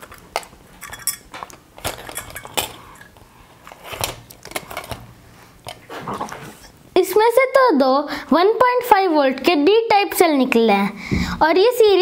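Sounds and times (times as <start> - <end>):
batteries clinking on metal: 0.0 - 3.2.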